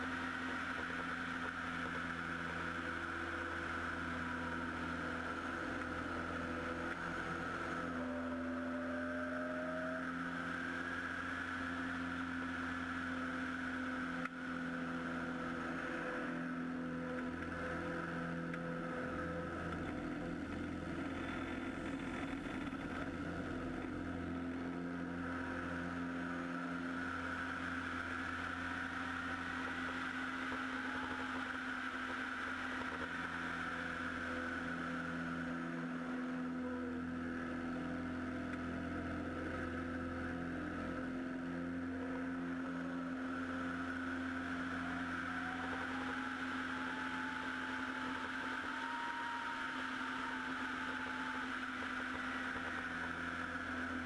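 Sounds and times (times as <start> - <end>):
airplane engine and propeller droning: 0.0 - 54.0
faint rising tone: 6.4 - 19.4.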